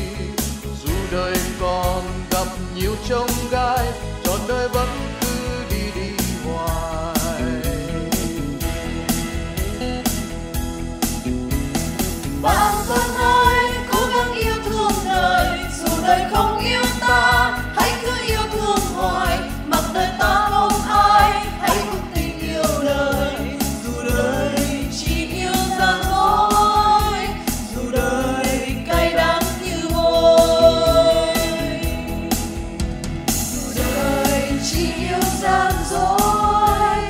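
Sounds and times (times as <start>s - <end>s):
voices singing together: 12.4s - 37.0s.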